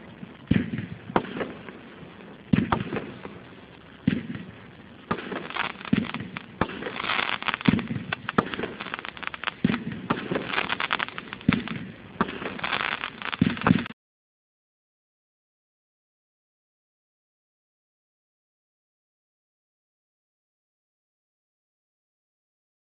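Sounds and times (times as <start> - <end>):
fireworks crackling: 0.0 - 14.0
fireworks reports: 0.0 - 14.0.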